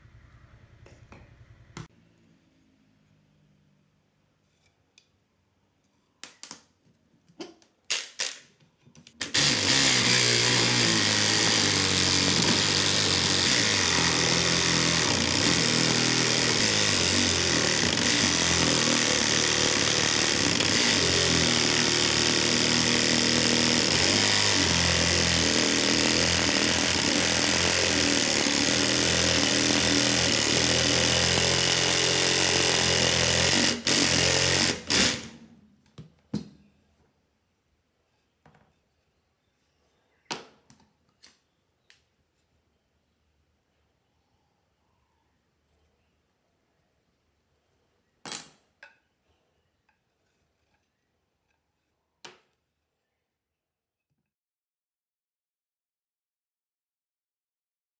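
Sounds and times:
jigsaw cutting wood: 9.2 - 35.5.

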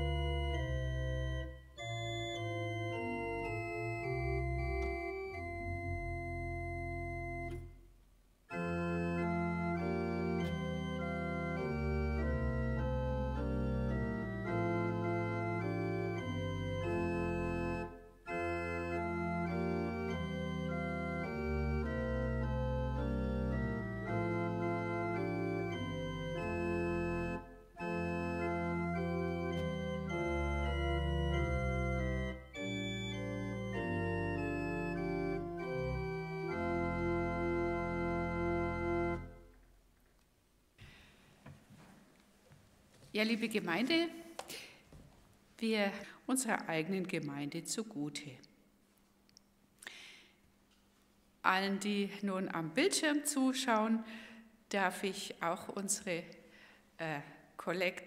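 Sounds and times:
pipe organ playing chords: 0.0 - 7.9, 8.5 - 39.6.

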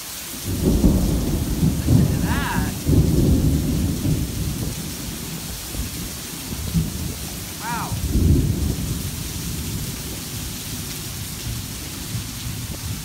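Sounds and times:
torrential rain hissing: 0.0 - 13.0
rolling thunder: 0.4 - 13.0.

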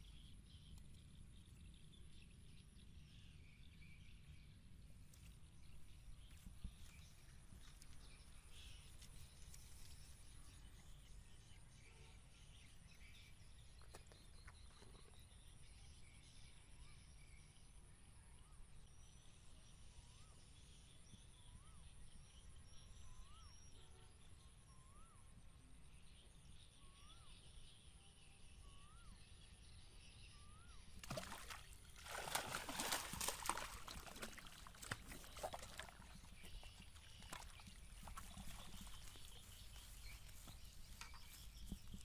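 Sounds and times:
fish splashing in water: 31.0 - 40.3.

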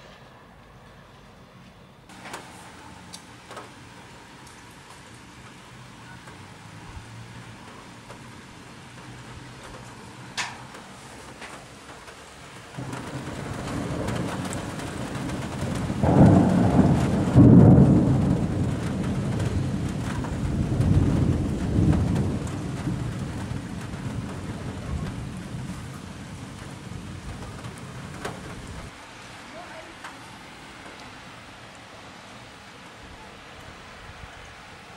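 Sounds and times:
steady rain: 2.1 - 34.9
rolling thunder: 12.7 - 28.9.

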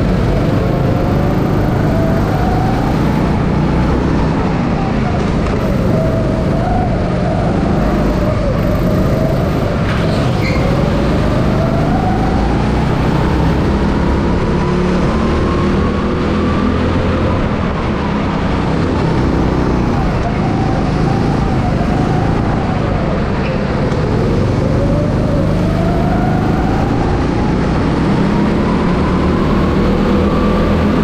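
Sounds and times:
go-kart engine revving: 0.0 - 31.0.

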